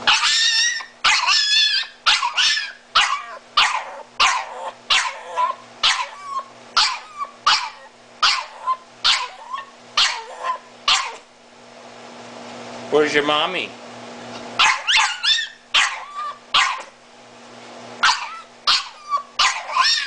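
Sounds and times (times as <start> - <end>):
dog yelping: 0.0 - 11.3, 14.6 - 17.0, 18.0 - 20.0.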